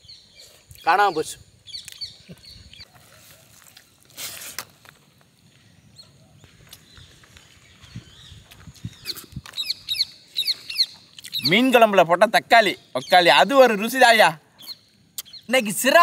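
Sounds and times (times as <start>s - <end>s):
faint bird chirps: 5.4s - 13.8s, 14.5s - 15.9s.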